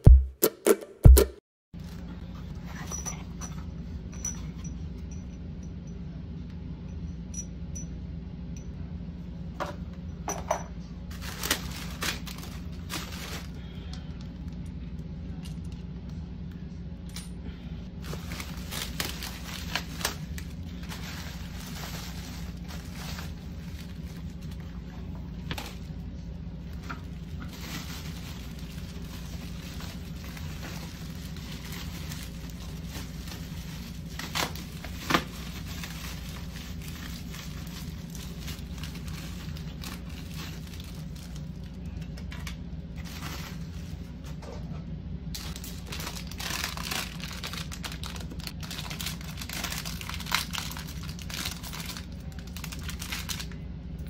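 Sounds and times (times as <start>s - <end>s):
plastic packaging crinkling: 11.1s - 13.6s, 18.0s - 25.0s, 26.6s - 43.9s, 45.3s - 53.6s.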